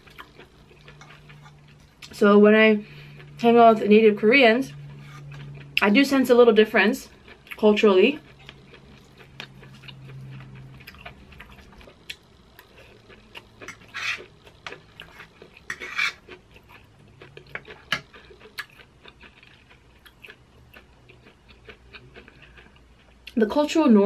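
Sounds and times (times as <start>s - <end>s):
soft chewing: 0.0s - 2.2s, 4.7s - 6.0s, 7.0s - 23.4s
fork scraping metal baking sheet: 13.7s - 14.3s, 15.0s - 16.2s.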